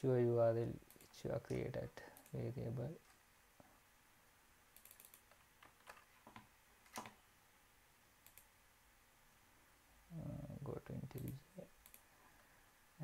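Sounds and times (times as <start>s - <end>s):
mouse and keyboard clicks: 4.8s - 7.2s, 8.2s - 8.5s.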